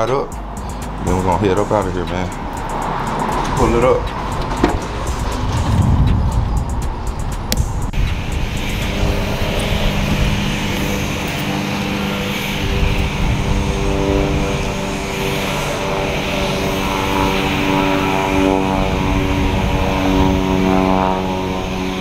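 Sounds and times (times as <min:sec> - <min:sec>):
loud rushing machine noise: 0:00.0 - 0:22.0
sharp clicks: 0:05.7 - 0:07.7.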